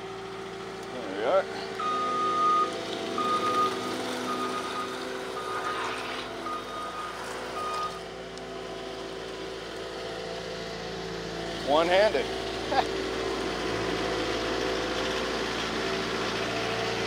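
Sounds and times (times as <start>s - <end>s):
diesel engine running: 0.0s - 17.0s
high repeated alarm beeps: 1.8s - 8.0s.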